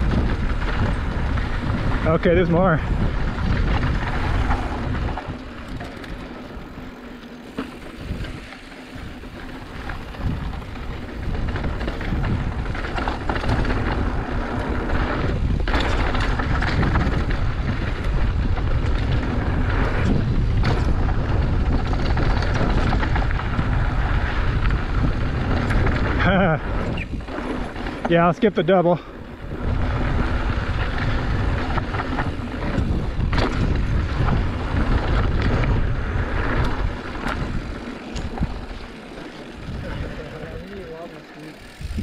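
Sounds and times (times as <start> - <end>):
bike tyres rolling on dirt: 0.0 - 42.0
wind rushing over microphone: 0.0 - 42.0
bike knocking over bumps: 7.4 - 28.2.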